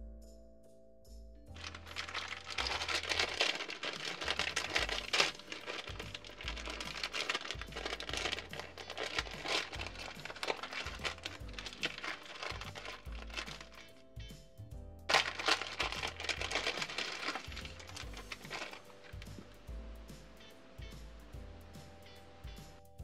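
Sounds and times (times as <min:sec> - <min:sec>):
background music: 0:00.0 - 0:23.0
plastic bags crinkling: 0:01.6 - 0:14.0, 0:15.1 - 0:19.5.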